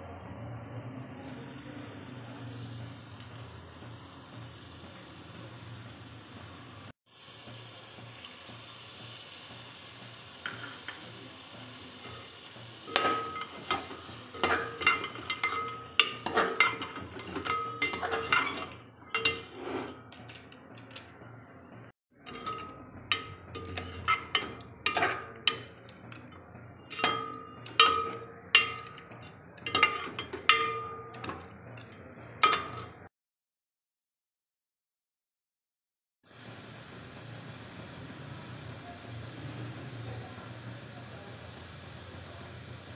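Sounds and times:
frying sizzle: 1.9s - 20.1s, 22.2s - 26.3s, 36.2s - 42.9s
metal ladle knocking a pot: 12.8s - 21.1s, 22.2s - 33.0s.

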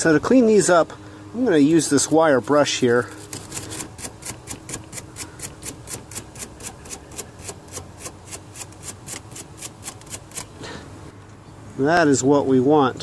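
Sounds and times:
wire brush scrubbing metal: 1.7s - 10.6s.

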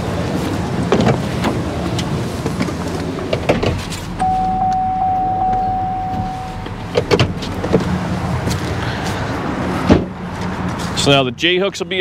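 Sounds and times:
truck engine running: 2.7s - 10.4s
high squeal: 3.9s - 8.4s.

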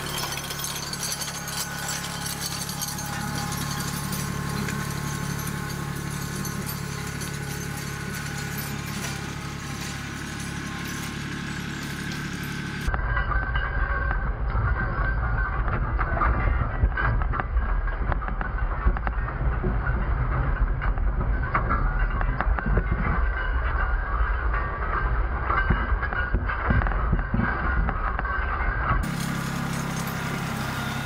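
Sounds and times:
harrow chains clattering: 0.0s - 31.0s
tractor diesel engine running: 0.0s - 31.0s.

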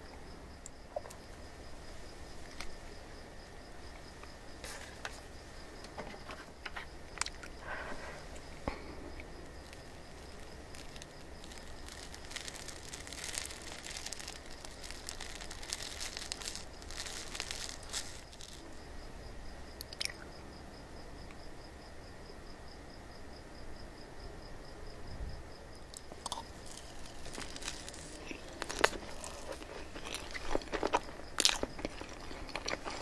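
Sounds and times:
crinkly sticky noise: 2.4s - 2.8s, 4.6s - 5.2s, 5.8s - 18.8s, 19.8s - 20.2s, 25.9s - 33.0s.

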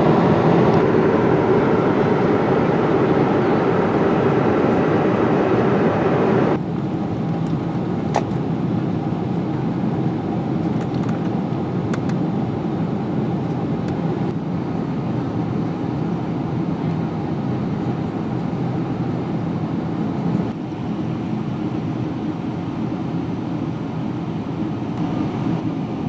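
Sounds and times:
air rushing past fuselage: 0.0s - 6.6s
airplane cabin engine drone: 0.0s - 26.0s.

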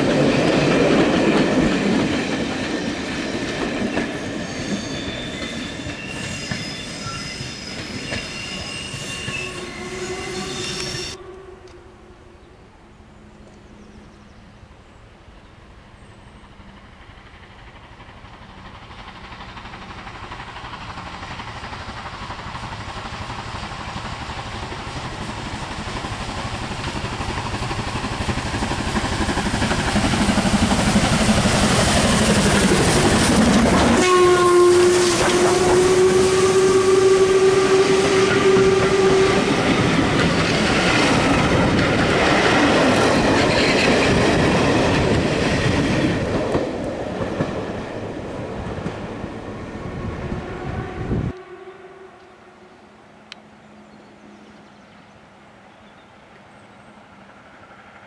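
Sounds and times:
steam locomotive passing: 0.0s - 58.0s
steam whistle: 4.4s - 12.4s, 33.8s - 39.7s, 50.3s - 52.9s.

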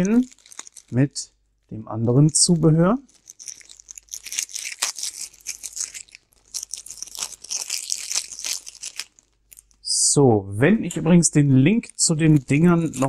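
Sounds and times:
plastic bag crinkling: 0.0s - 9.9s, 11.7s - 13.0s.

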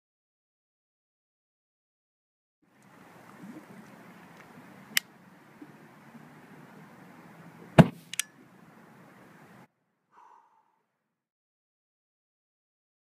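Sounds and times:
faint steady hiss: 2.7s - 9.7s
sharp pop of explosive: 7.8s - 8.1s.

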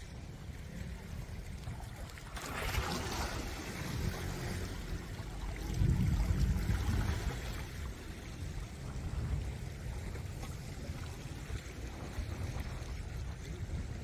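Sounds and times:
sea water lapping: 0.0s - 14.0s
wind buffeting microphone: 0.0s - 14.0s.

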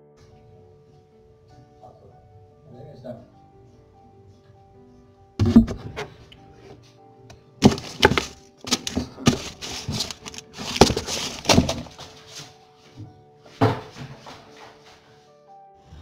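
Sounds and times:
background music: 0.0s - 16.0s
sharp thumps: 5.4s - 6.3s
newspaper rustling: 7.6s - 12.6s.

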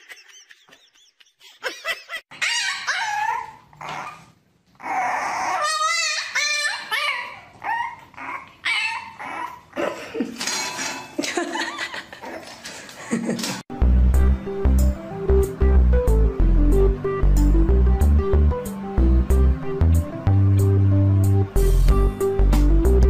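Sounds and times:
puppy yipping and howling: 2.3s - 9.7s.

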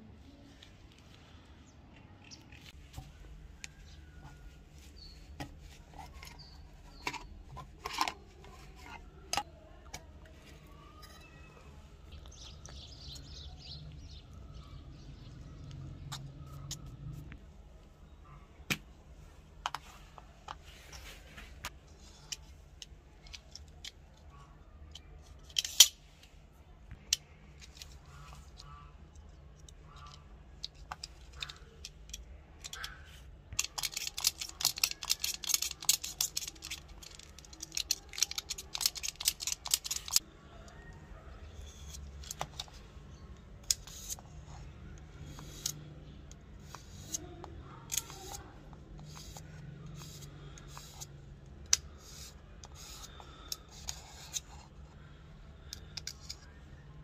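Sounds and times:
fast scraping clicks: 27.0s - 40.2s.

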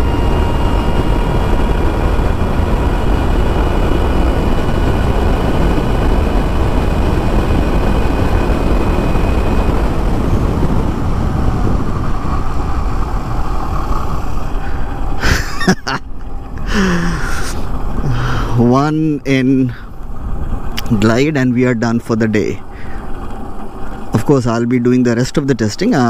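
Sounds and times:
faint high whine: 0.0s - 26.0s
wind and road rush: 0.0s - 26.0s.

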